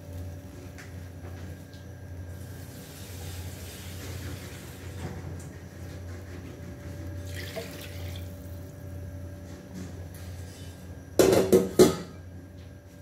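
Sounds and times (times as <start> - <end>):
low steady hum: 4.8 - 13.0.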